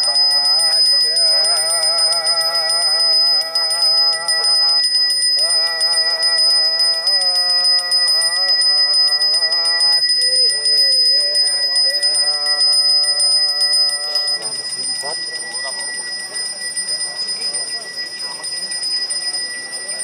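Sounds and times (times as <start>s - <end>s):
prayer chanted in held notes: 0.0s - 15.8s
hand bell ringing: 0.0s - 20.0s.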